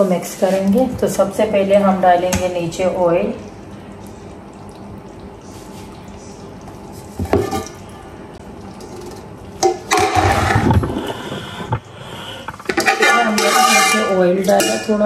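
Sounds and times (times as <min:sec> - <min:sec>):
ladle clinking against pot: 0:12.7 - 0:15.0.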